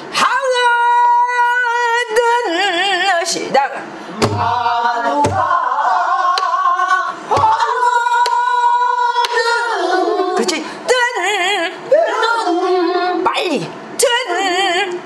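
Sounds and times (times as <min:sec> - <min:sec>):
barrel drum strokes: 0:04.2 - 0:04.6.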